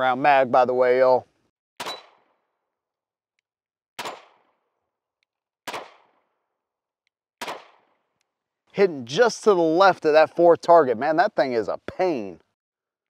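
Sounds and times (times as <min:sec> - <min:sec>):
pistol shots with echo: 0:01.8 - 0:02.4, 0:04.0 - 0:04.6, 0:05.7 - 0:06.2, 0:07.4 - 0:08.0.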